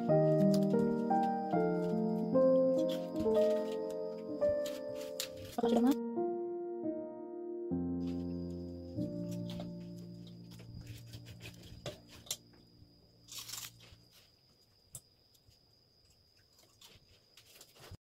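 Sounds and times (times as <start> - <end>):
background music: 0.0 - 12.4
knife scraping chestnut shells: 10.9 - 12.4.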